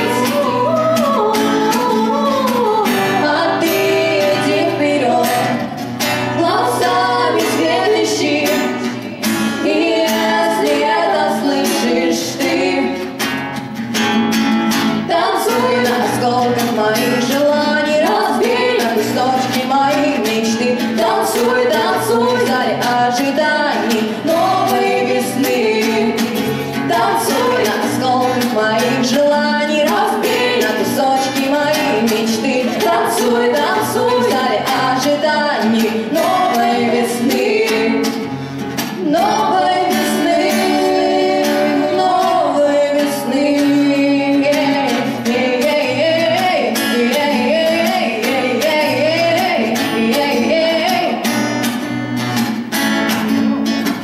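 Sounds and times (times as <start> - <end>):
woman singing into microphone: 0.0 - 13.2, 14.9 - 51.4
strummed acoustic guitar: 0.0 - 54.0.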